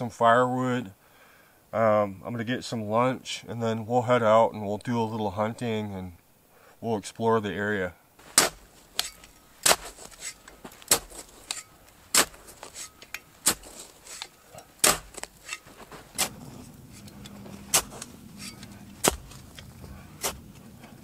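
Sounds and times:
low steady hum: 0.0 - 21.0
shovel chopping into ground: 8.2 - 20.6.

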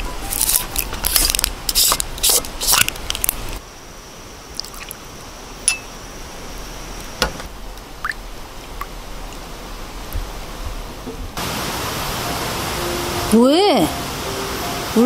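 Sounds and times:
faint steady hiss: 0.0 - 15.0
glasses and tableware clinking: 5.7 - 5.9.

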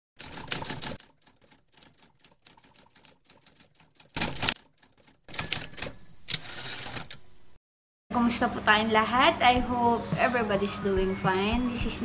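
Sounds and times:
typewriter clatter: 0.2 - 7.2
typewriter bell ding: 5.3 - 7.0.

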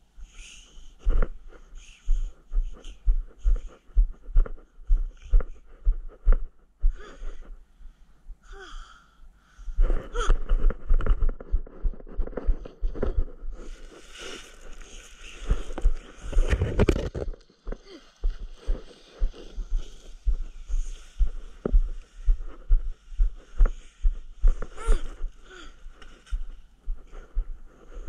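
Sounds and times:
scuffing and rustling: 10.8 - 16.7.

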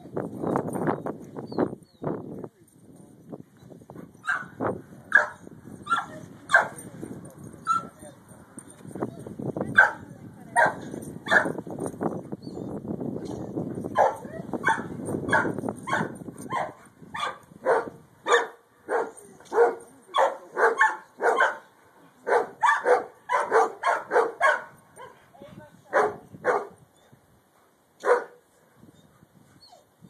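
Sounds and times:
dog barking: 4.2 - 6.7, 9.8 - 10.0, 10.6 - 11.6, 14.0 - 21.6, 22.2 - 25.2, 25.9 - 26.8, 28.0 - 28.4.

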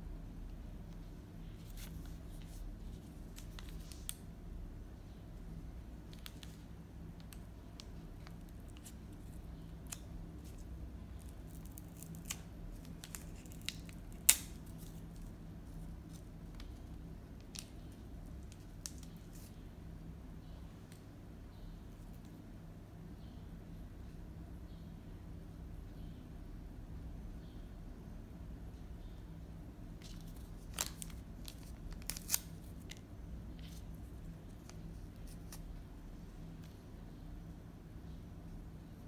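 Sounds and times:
low steady hum: 0.0 - 39.0
paper packaging rustling: 30.0 - 33.0.

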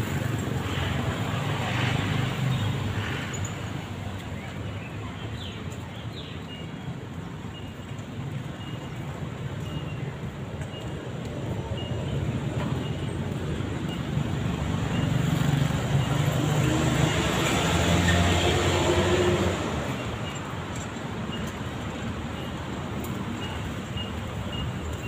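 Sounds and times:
street traffic rumble: 0.0 - 25.0.

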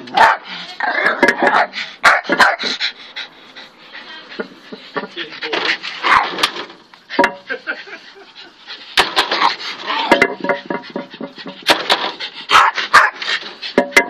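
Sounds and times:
dog barking: 0.2 - 0.4, 1.5 - 2.6, 12.5 - 13.2
dog panting: 1.6 - 6.0, 7.9 - 9.8, 10.6 - 13.9.

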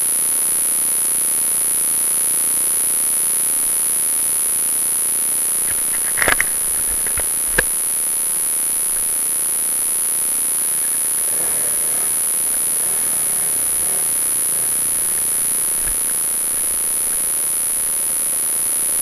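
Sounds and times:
camera recording hiss: 5.4 - 19.0
sharp clicks: 5.6 - 9.2, 10.6 - 19.0
thin high whine: 5.6 - 19.0.

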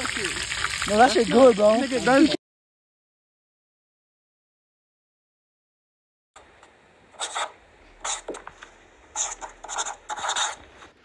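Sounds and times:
scratchy rustling noise: 7.2 - 11.0.

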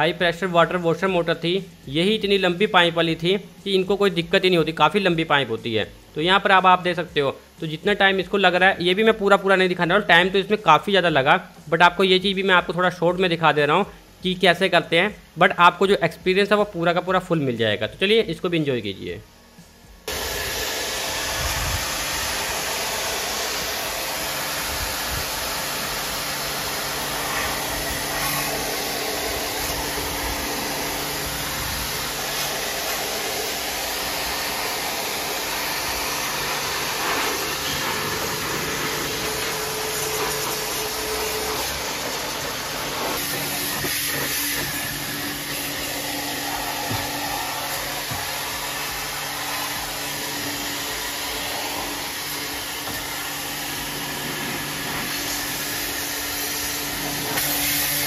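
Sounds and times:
pressure washer motor humming: 20.1 - 58.0
water jet hissing: 20.1 - 58.0.

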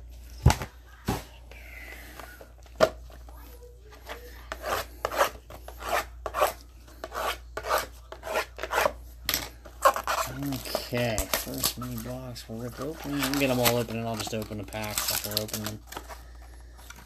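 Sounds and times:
knife scraping cardboard: 4.1 - 9.0, 9.8 - 11.8.

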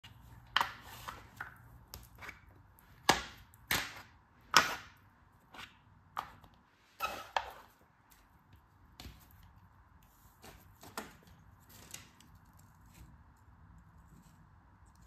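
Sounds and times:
sand molds tapping and clicking: 0.0 - 6.7.

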